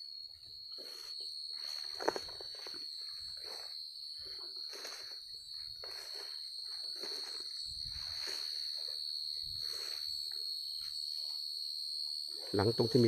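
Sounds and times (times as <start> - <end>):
high-pitched insect chorus: 0.0 - 13.0
footsteps through grass: 0.7 - 10.2.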